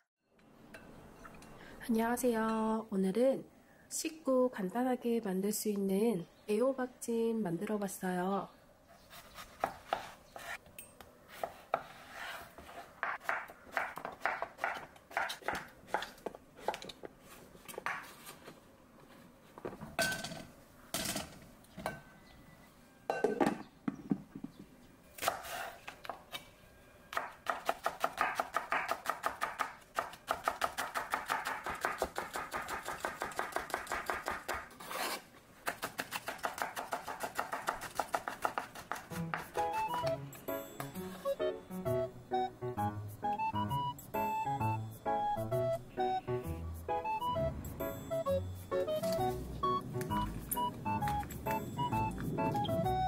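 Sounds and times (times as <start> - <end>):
knife chopping vegetables: 9.1 - 10.6, 11.3 - 17.0, 25.2 - 26.4, 27.1 - 40.2.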